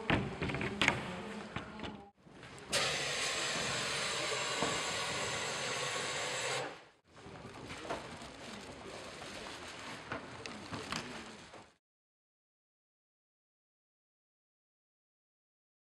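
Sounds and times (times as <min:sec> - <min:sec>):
room noise: 0:00.0 - 0:11.8
gas hissing from cylinder: 0:02.7 - 0:06.9.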